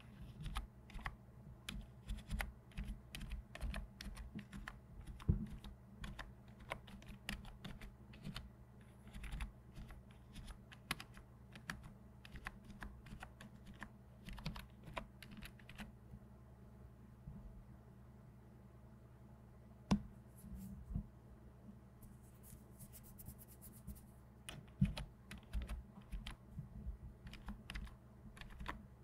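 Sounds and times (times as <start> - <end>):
keyboard keys clicking: 9.1 - 15.9, 24.5 - 26.4, 27.2 - 28.8.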